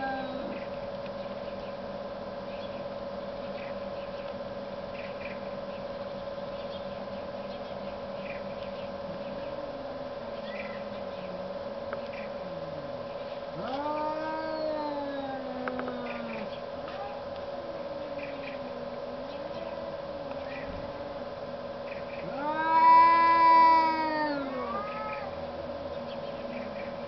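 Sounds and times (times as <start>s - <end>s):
cat growl-moan: 0.0s - 0.6s, 13.6s - 16.5s, 22.2s - 25.4s
steady hum: 0.0s - 27.0s.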